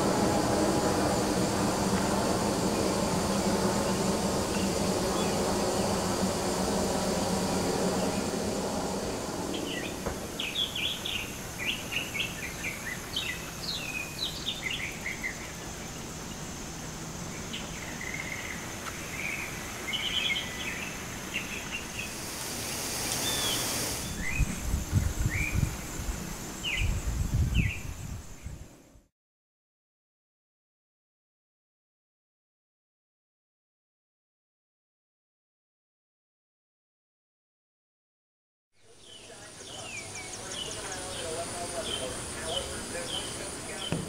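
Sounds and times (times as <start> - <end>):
small birds chirping: 2.7 - 8.5, 9.1 - 16.5, 17.3 - 25.7, 38.8 - 44.0
burst of hiss: 21.8 - 24.6.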